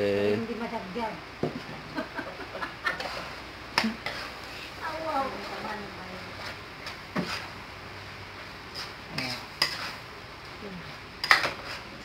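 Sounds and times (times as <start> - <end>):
metal spoon scraping a pan: 2.9 - 4.5, 6.4 - 7.6, 8.7 - 10.1, 11.2 - 12.0.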